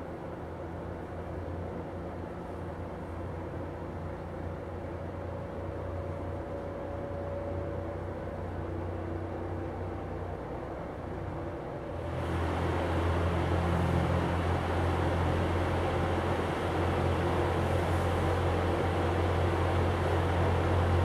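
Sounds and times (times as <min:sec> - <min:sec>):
box fan running: 0:12.0 - 0:21.0.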